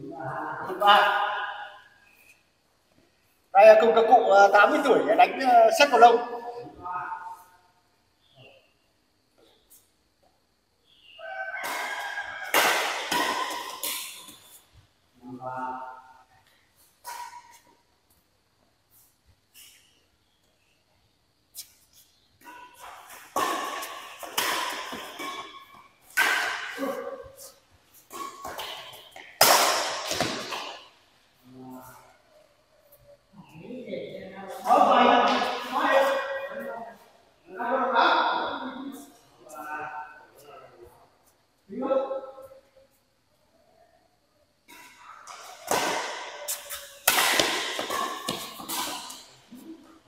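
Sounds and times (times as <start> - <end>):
rackets hitting shuttlecock: 11.6 - 14.6, 17.0 - 17.7, 22.4 - 31.0, 44.7 - 49.9.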